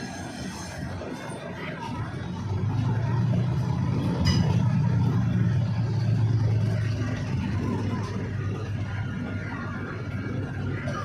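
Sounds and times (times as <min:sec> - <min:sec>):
railcar engine humming: 0:00.0 - 0:11.0
metal clank with ring: 0:04.2 - 0:04.7.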